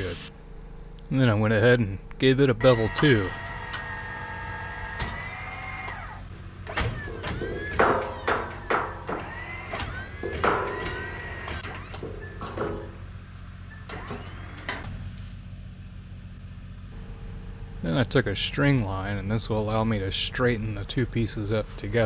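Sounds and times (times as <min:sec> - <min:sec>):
engine idling hum: 0:00.0 - 0:22.0
angle grinder cutting steel: 0:02.6 - 0:06.2.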